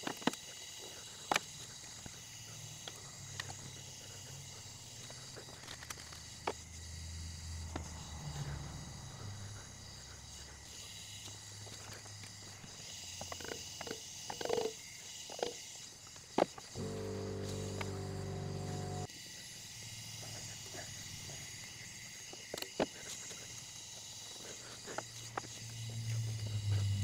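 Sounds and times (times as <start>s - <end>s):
steady low buzz: 16.8s - 19.1s, 25.6s - 27.0s.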